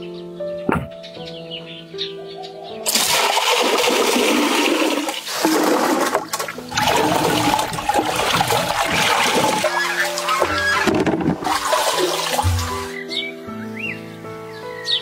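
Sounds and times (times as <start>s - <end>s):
music with steady notes: 0.0s - 2.9s, 9.5s - 15.0s
rushing water: 2.9s - 13.2s.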